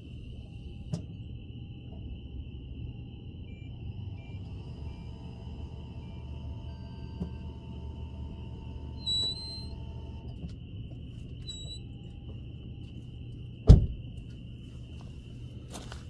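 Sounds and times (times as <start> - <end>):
thin high whine: 0.0 - 13.2
low hum: 0.0 - 16.0
loud sharp thump: 13.7 - 14.0.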